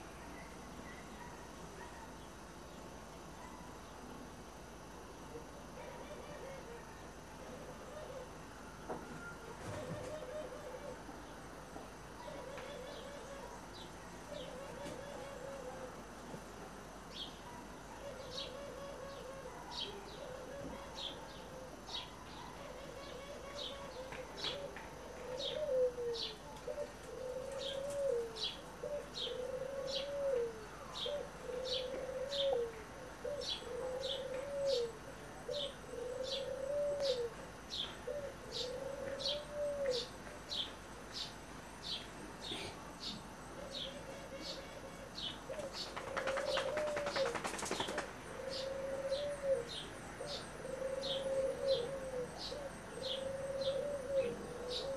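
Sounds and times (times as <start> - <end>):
dove cooing: 5.3 - 11.2, 12.2 - 13.6, 14.3 - 16.1, 18.0 - 40.2, 42.4 - 54.9.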